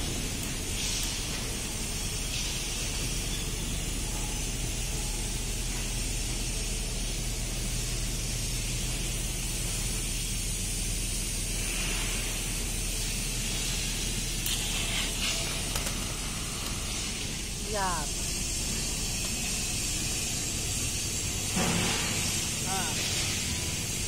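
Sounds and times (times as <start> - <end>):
welding arc hissing: 0.0 - 24.0.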